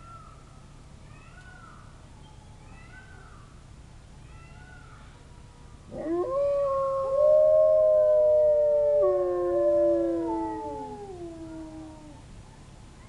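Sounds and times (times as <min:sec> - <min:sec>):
wolves howling: 0:05.9 - 0:12.2.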